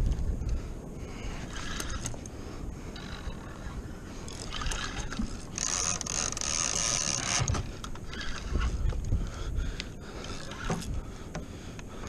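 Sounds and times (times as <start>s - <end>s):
low rumble of water and wind: 0.0s - 12.0s
fishing reel drag buzzing: 1.4s - 2.2s, 3.0s - 8.8s, 10.2s - 10.9s.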